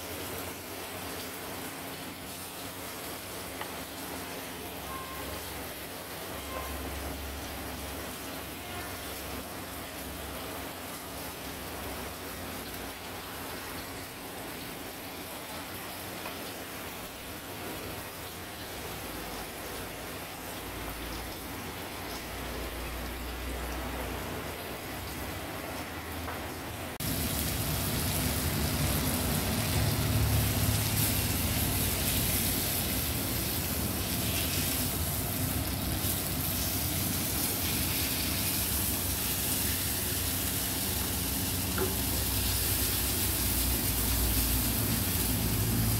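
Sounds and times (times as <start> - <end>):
food sizzling in a pan: 26.9 - 45.9.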